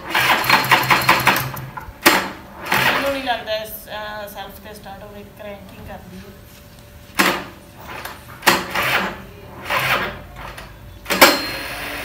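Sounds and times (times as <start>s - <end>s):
scooter starter cranking engine: 0.0s - 3.3s, 8.4s - 12.0s.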